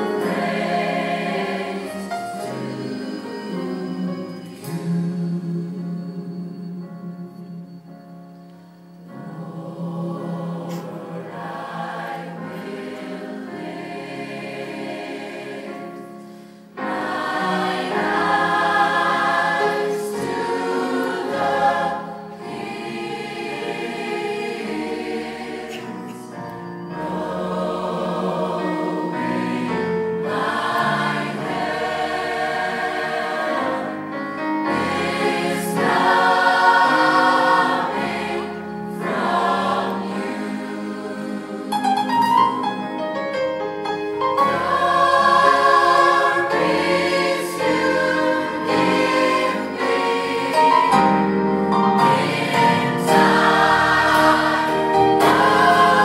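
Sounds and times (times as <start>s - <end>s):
choir singing: 0.0s - 56.0s.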